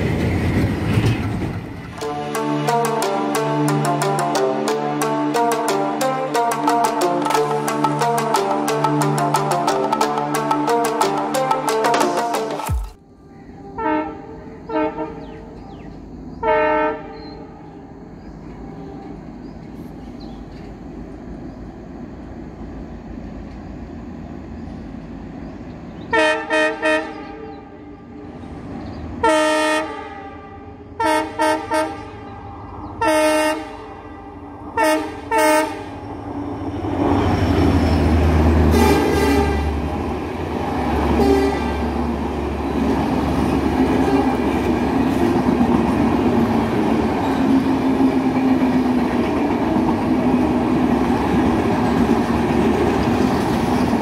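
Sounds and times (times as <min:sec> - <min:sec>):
train rumbling past on rails: 0:00.0 - 0:12.3, 0:12.9 - 0:54.0
locomotive horn blasts: 0:02.0 - 0:09.3, 0:13.5 - 0:15.8, 0:16.4 - 0:19.4, 0:26.1 - 0:28.4, 0:29.2 - 0:32.4, 0:33.0 - 0:36.0, 0:38.7 - 0:39.9, 0:41.0 - 0:42.0.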